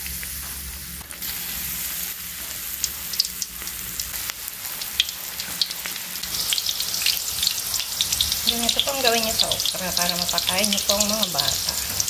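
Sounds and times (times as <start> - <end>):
deep-frying sizzle with pops: 0.0 - 12.0.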